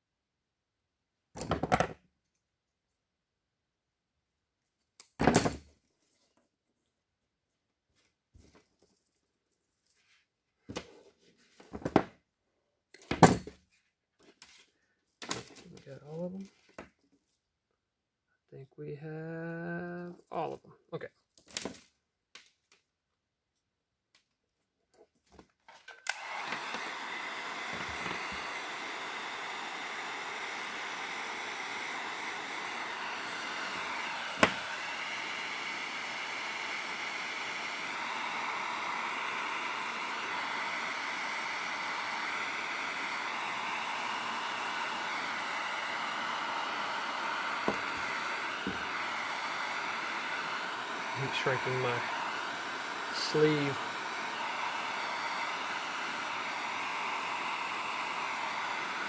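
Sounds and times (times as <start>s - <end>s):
heat gun blowing hot air: 25.9s - 59.0s.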